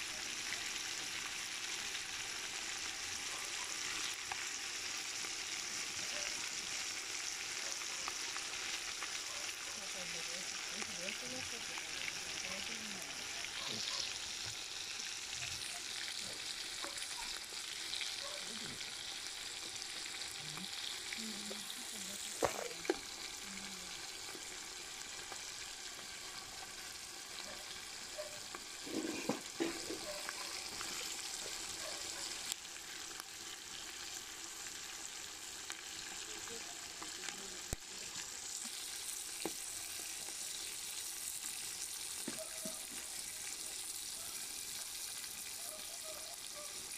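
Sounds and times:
fat sizzling: 0.0s - 46.9s.

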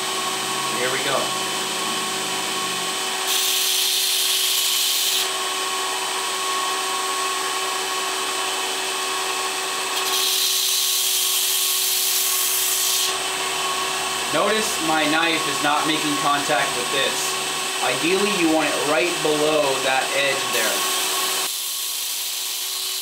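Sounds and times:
belt grinder running: 0.0s - 23.0s
knife grinding on abrasive belt: 3.0s - 5.4s, 9.8s - 14.9s, 19.6s - 23.0s.

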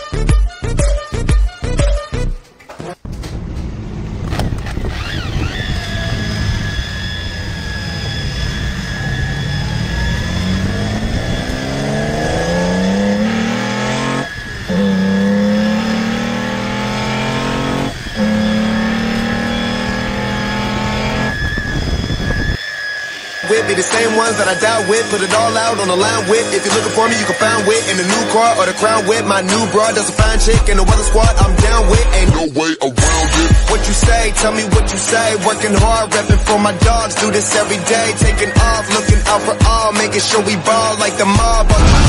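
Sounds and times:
car engine accelerating: 2.9s - 22.6s, 33.0s - 35.3s
steady high whine: 3.1s - 32.4s.

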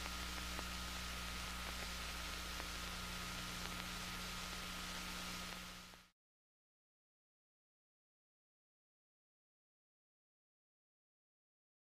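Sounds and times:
faint ticks: 0.0s - 6.1s
low mains hum: 0.0s - 6.1s
recording hiss: 0.0s - 6.1s.

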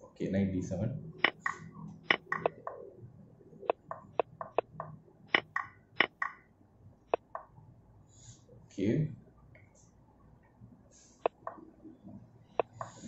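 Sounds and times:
computer mouse clicking: 1.2s - 2.8s, 3.6s - 6.4s, 11.2s - 11.6s, 12.6s - 13.0s.

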